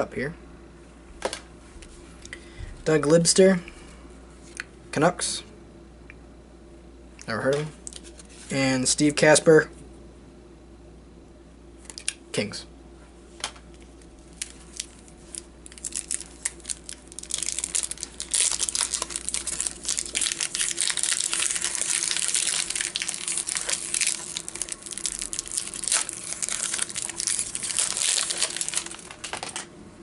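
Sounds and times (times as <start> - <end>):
wrapper tearing and crinkling: 13.9 - 29.7.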